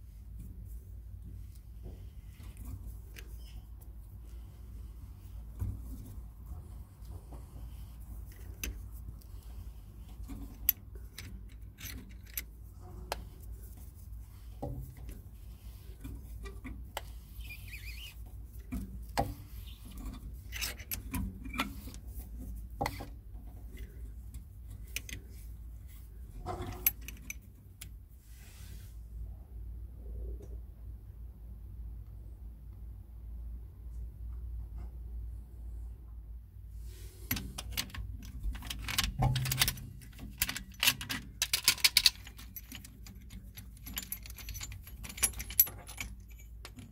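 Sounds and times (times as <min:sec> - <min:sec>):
metallic clicks and scraping of tool: 0:01.5 - 0:28.0, 0:37.0 - 0:46.9.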